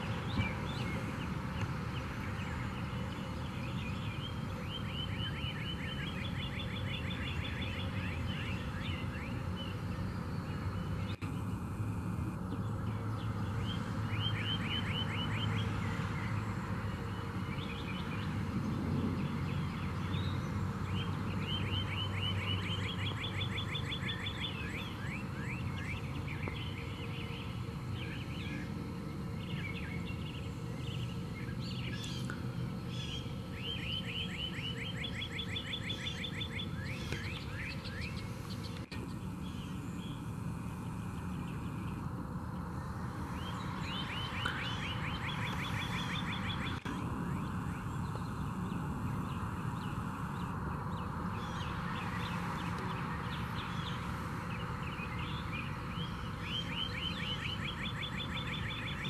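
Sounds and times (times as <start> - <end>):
bird chirps: 0.0 - 11.4, 12.5 - 18.4, 19.2 - 28.7, 29.3 - 40.2, 40.8 - 59.0
low background noise: 0.0 - 59.0
songbird trilling: 29.4 - 40.2, 43.4 - 59.0.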